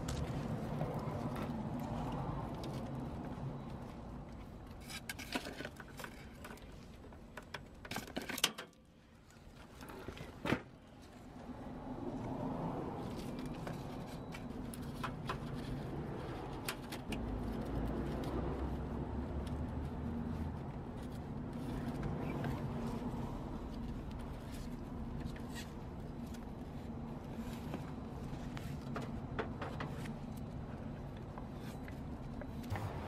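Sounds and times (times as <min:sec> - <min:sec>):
steady low hum: 0:25.8 - 0:33.0.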